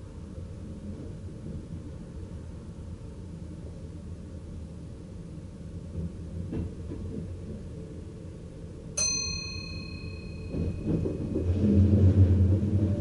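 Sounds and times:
train rumble: 0.0 - 13.0
bell-like chime: 9.0 - 11.1.

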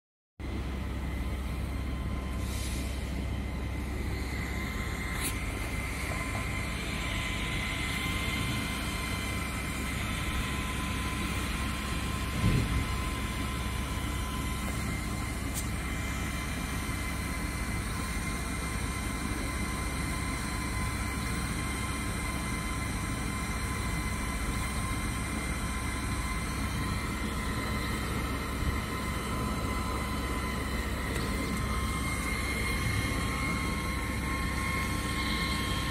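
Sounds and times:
laser engraver whirring hum: 0.4 - 35.9
brief thump: 12.4 - 12.9.

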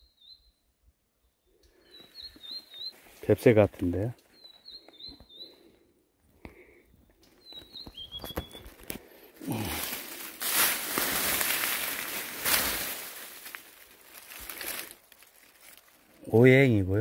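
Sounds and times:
short high bird chirps: 7.4 - 8.7
footsteps crunching through dry leaves: 8.1 - 16.3.

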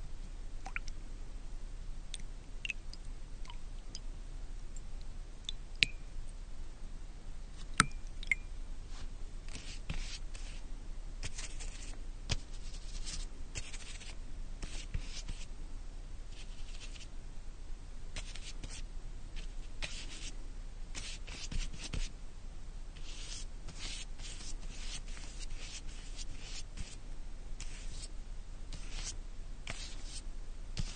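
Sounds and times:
paint brush strokes on wall: 8.8 - 15.5, 16.3 - 17.1, 18.2 - 18.8, 19.4 - 20.3, 20.9 - 22.1, 23.0 - 27.0, 27.6 - 28.1, 28.7 - 30.2.

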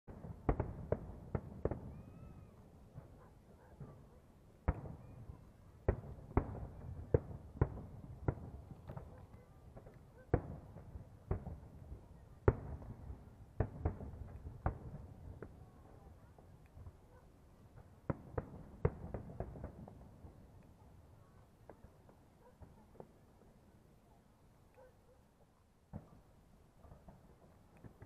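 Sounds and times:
fireworks bangs: 0.1 - 16.9, 17.7 - 20.5.

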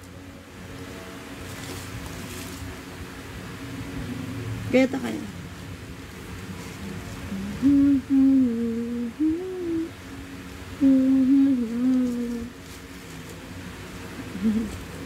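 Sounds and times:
person humming a tune: 6.8 - 10.0, 10.7 - 12.6, 14.2 - 15.0.

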